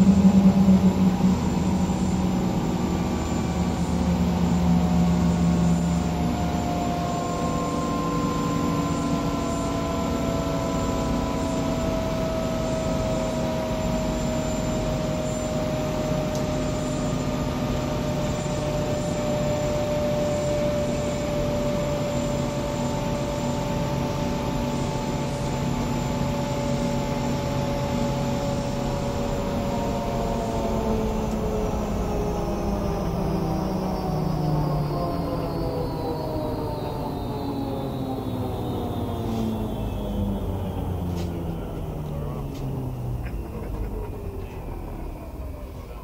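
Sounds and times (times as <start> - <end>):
helicopter turbine winding down: 0.0 - 46.0
high whine sliding down: 0.0 - 46.0.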